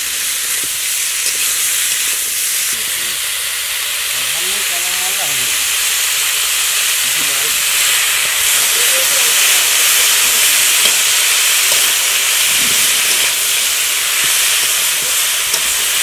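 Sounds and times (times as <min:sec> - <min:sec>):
food sizzling in hot oil: 0:00.0 - 0:16.0
metal spatula stirring: 0:09.3 - 0:16.0.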